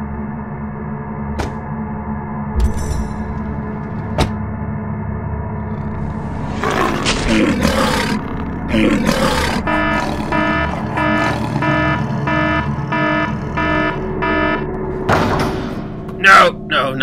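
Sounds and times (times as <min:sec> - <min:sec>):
synth drone: 0:00.0 - 0:15.1
pulsing electronic beeps: 0:09.2 - 0:14.7.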